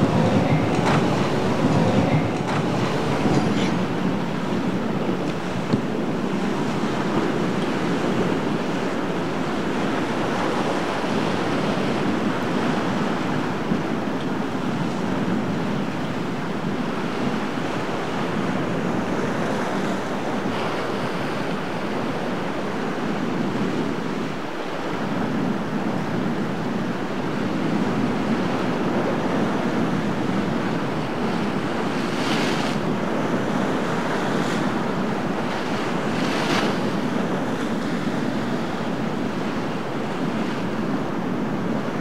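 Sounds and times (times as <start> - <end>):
surf breaking: 0.0 - 5.9
wind buffeting microphone: 0.0 - 42.0.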